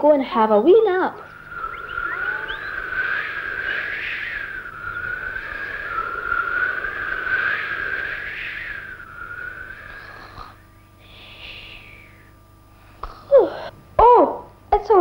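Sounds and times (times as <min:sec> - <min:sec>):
whistling wind gust: 0:00.5 - 0:11.0.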